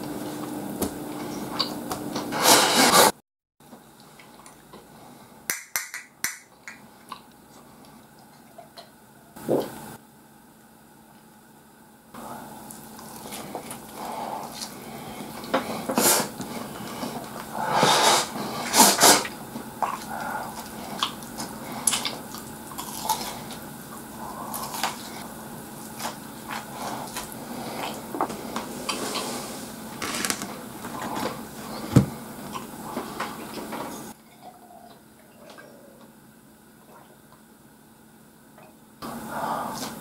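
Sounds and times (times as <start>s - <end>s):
close-up eating noises: 6.5s - 9.8s, 12.2s - 37.6s.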